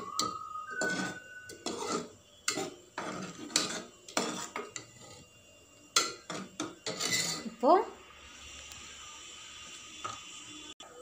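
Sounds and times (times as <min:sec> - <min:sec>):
spoon scraping a metal pot: 0:00.0 - 0:07.6.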